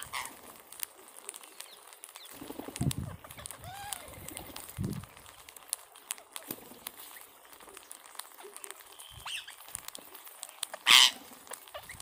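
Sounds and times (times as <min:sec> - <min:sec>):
beaks pecking clicks: 0:00.0 - 0:12.0
wings flapping: 0:00.0 - 0:12.0
bird call: 0:08.4 - 0:09.6.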